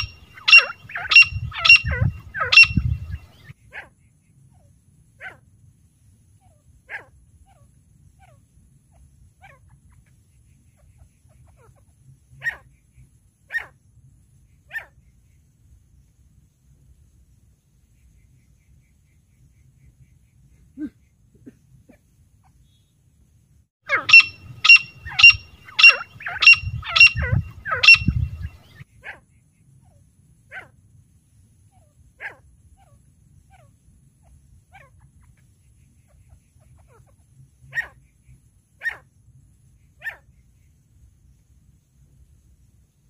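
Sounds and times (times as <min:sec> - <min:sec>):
francolin calling: 0:00.0 - 0:03.5, 0:23.9 - 0:28.8
low rumble: 0:01.3 - 0:03.4, 0:26.5 - 0:28.7.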